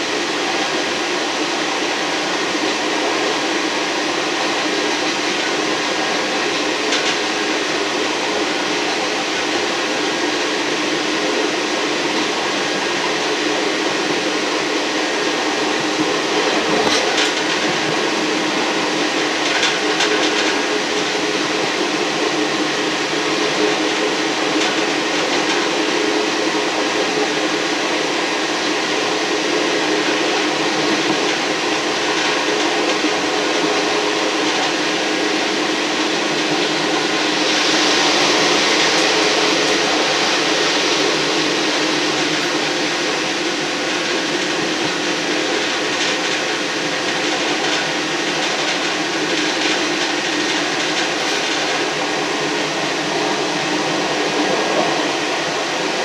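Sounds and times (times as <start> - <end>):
train running drone: 0.0 - 56.0
hiss: 33.5 - 56.0.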